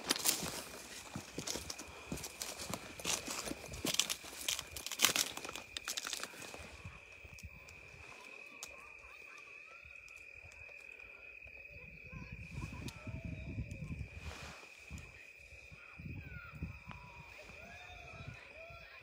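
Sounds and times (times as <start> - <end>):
footsteps crunching through dry brush: 0.0 - 7.5.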